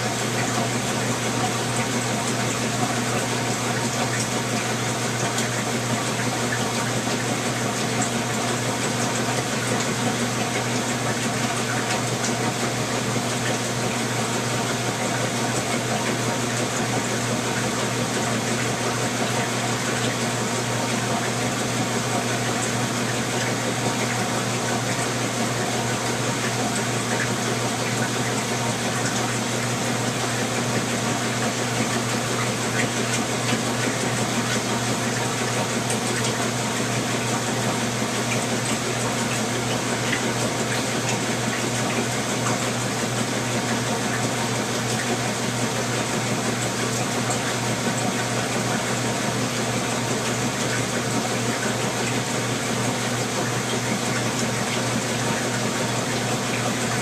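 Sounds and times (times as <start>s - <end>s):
washing machine running: 0.0s - 57.0s.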